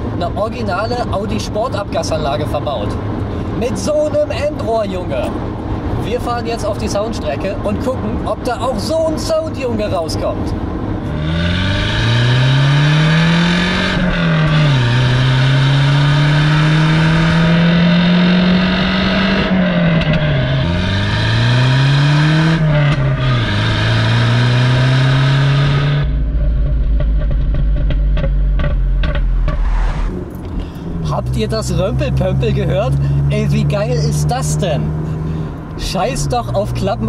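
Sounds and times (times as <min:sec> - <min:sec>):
car engine accelerating: 0:10.2 - 0:37.0.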